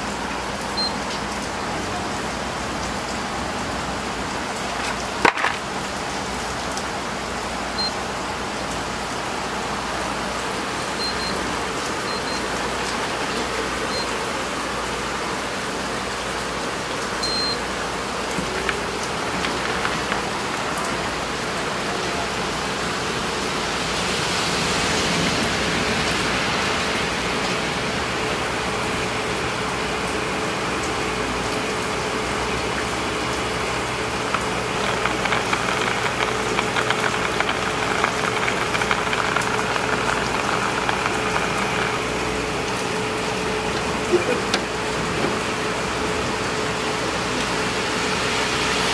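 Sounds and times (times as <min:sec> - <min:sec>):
water running into a bowl: 0:17.2 - 0:22.4, 0:32.1 - 0:45.0.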